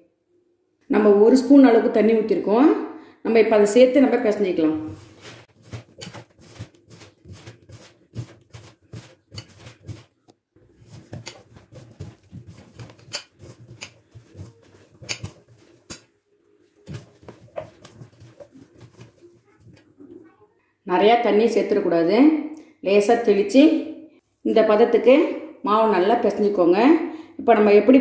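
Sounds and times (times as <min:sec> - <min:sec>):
hand kneading wet mixture squelching: 0:04.8 - 0:16.1, 0:16.8 - 0:19.9.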